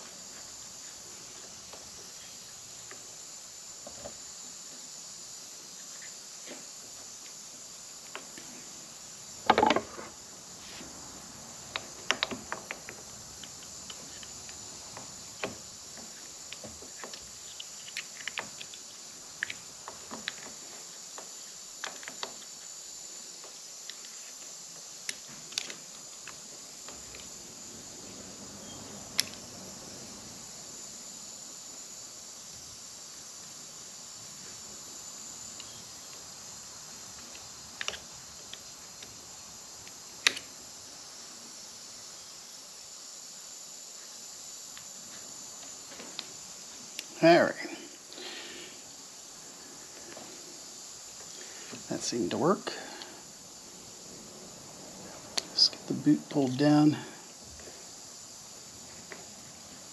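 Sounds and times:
steady high hiss: 0:00.0 - 0:59.9
scraping rustle: 0:09.6 - 0:11.0
small clicks and taps: 0:11.7 - 0:18.8.

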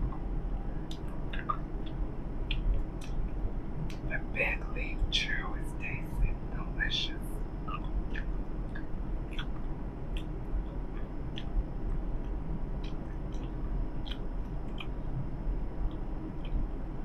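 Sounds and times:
bus engine rumble: 0:00.0 - 0:17.0
gum chewing mouth smacks: 0:11.3 - 0:15.0.

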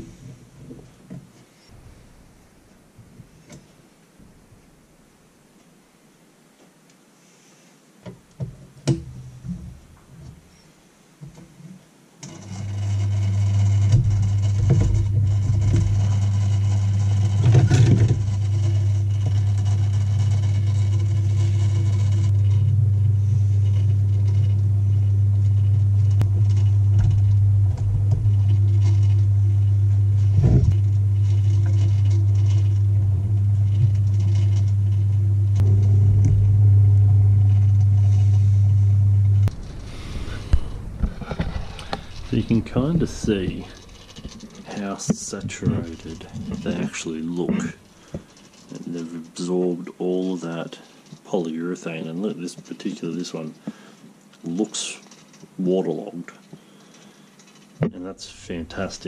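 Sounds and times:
electric motor hum: 0:12.2 - 0:48.9, 0:57.5 - 0:59.0.

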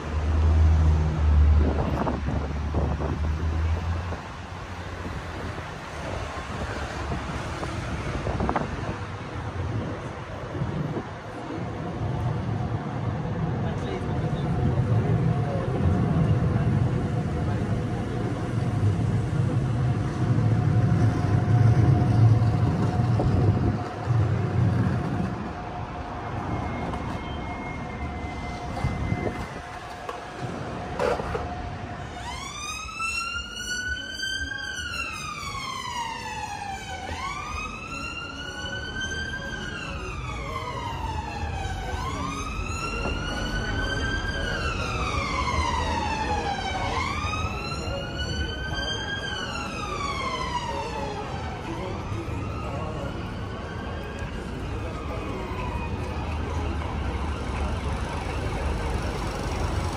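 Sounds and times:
road traffic rumbling: 0:00.0 - 0:59.9
emergency vehicle siren wailing: 0:01.6 - 0:59.9.

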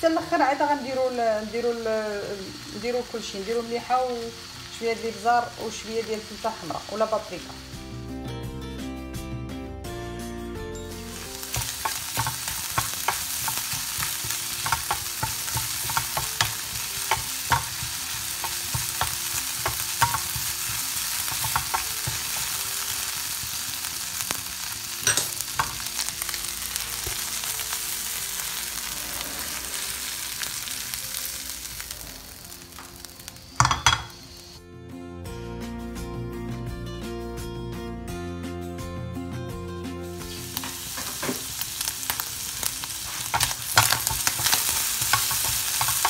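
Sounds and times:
shrimp sizzling in a frying pan: 0:00.0 - 0:08.1, 0:11.0 - 0:34.6, 0:40.2 - 0:46.0
spatula clacking against pan: 0:11.5 - 0:22.6, 0:43.2 - 0:46.0.

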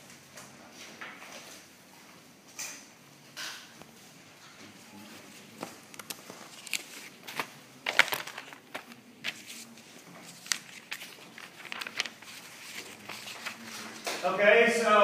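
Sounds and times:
objects clicking and rustling: 0:05.6 - 0:09.6.

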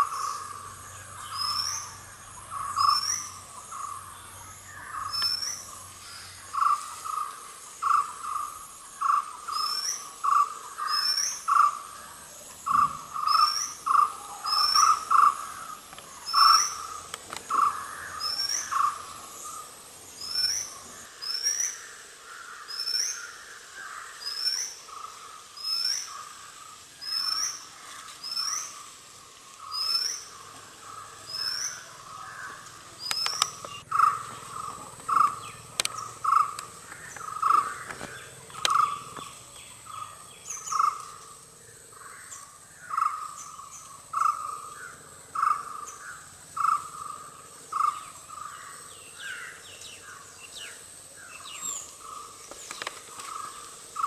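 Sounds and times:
high insect drone: 0:00.0 - 0:54.0
sharp clicks: 0:33.0 - 0:33.8, 0:35.0 - 0:39.3.

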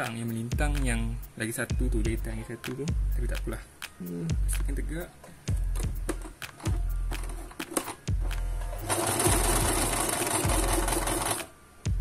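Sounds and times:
sewing machine stitching: 0:08.7 - 0:11.5.

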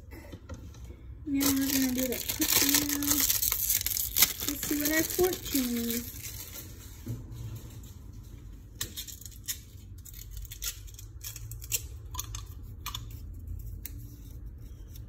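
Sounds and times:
low room hum: 0:00.0 - 0:15.0
fortune cookie cracking by hand: 0:08.8 - 0:15.0.

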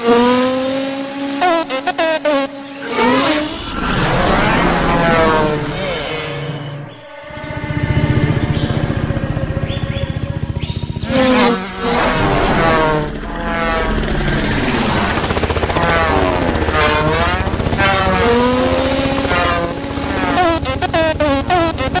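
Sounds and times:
beetle wings buzzing: 0:07.0 - 0:22.0.

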